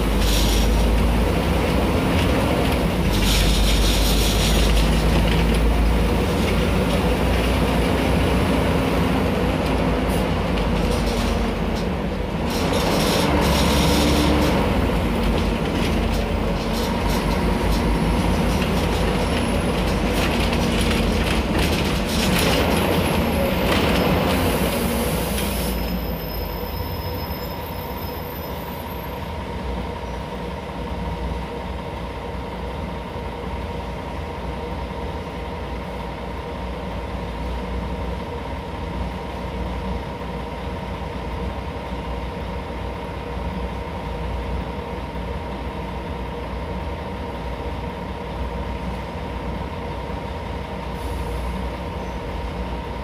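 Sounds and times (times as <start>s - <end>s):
bus body rattling: 0.0s - 26.2s
bus engine running: 0.0s - 53.0s
road noise: 0.0s - 53.0s.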